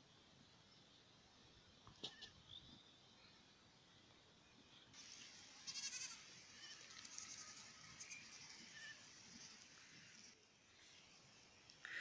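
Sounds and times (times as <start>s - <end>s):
goats bleating: 5.6s - 9.1s.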